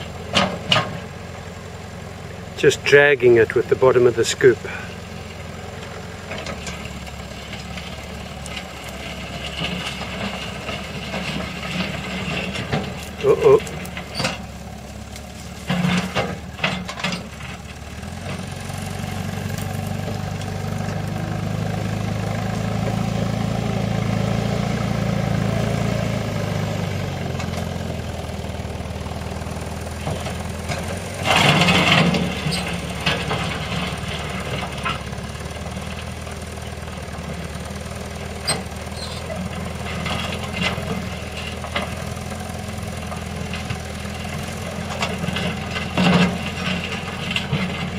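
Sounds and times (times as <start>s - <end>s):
diesel engine running: 0.0s - 47.9s
bucket dragging gravel: 8.6s - 17.4s.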